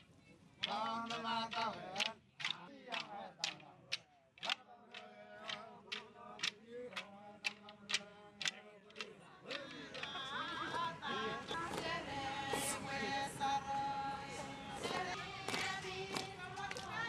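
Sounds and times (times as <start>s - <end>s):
women singing together: 0.6s - 3.6s, 4.4s - 17.0s
wooden sticks clacking: 0.6s - 10.2s
low male chanting: 0.6s - 15.2s.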